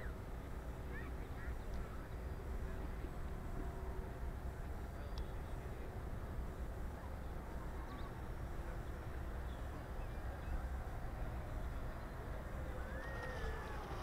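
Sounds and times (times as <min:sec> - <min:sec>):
wind rumble on microphone: 0:00.0 - 0:14.0
model plane motors whining: 0:09.2 - 0:14.0.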